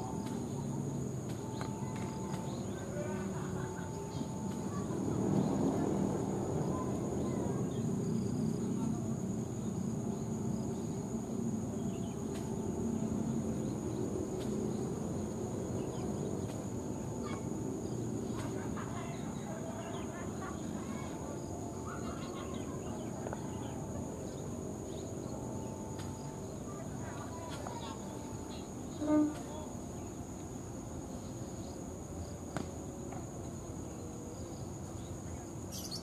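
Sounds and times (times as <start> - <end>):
insect buzz: 0.0 - 36.0
bird chirps: 35.7 - 36.0.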